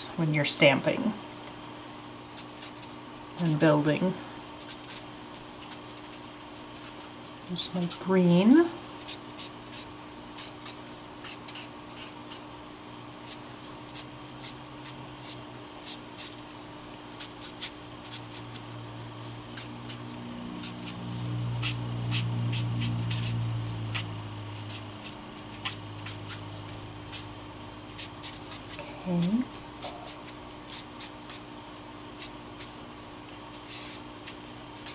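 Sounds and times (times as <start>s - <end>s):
steady low hum: 0.0s - 34.9s
marker ticking and scratching on paper: 2.4s - 3.7s, 4.6s - 8.1s, 9.0s - 12.4s, 13.2s - 16.5s, 17.1s - 18.7s, 19.3s - 31.5s, 32.2s - 32.8s, 33.5s - 34.9s.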